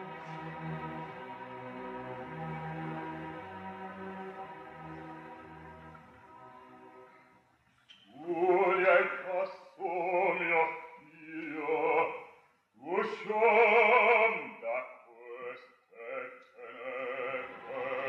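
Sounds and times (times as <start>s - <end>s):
faint orchestra: 0.0s - 18.0s
operatic bass voice singing: 8.2s - 12.2s, 12.8s - 18.0s.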